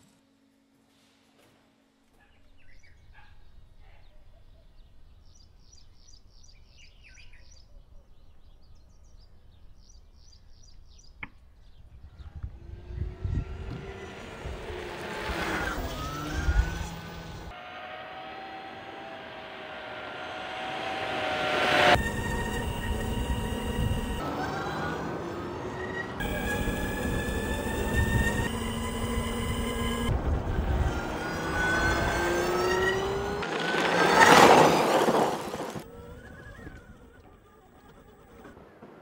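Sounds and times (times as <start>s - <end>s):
birds chirping: 2.2s - 14.9s
electric motorcycle whine passing: 12.1s - 38.6s
tyre and wind noise: 26.2s - 39.0s.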